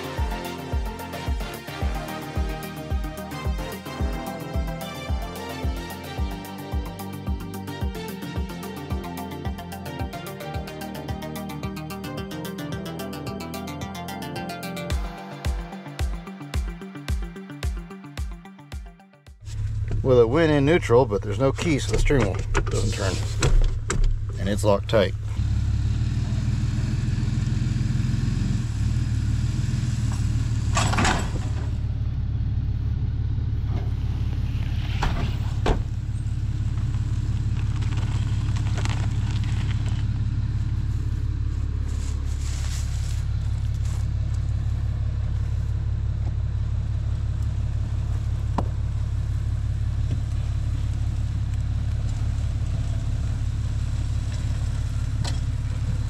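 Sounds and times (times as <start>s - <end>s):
truck engine idling: 19.4s - 56.0s.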